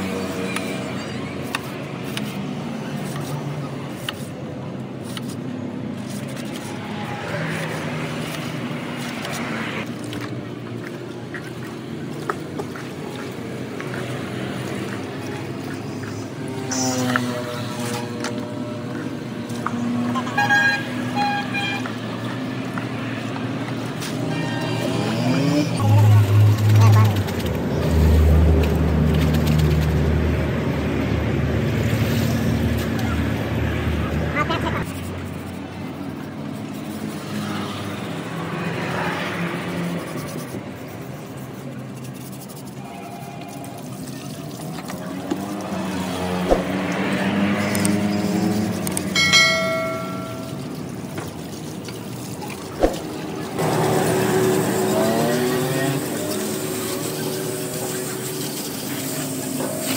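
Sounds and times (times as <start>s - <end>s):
brush scrubbing metal fins: 0.0s - 31.1s, 31.8s - 59.9s
water sloshing and bubbling: 5.8s - 32.8s, 35.2s - 59.9s
faint water splashing: 6.3s - 18.3s
engine droning: 52.6s - 59.9s.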